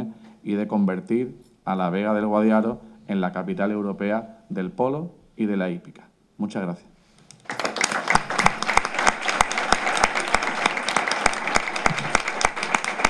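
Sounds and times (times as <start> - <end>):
individual loud claps: 7.3 - 13.0
audience applauding: 7.4 - 13.0.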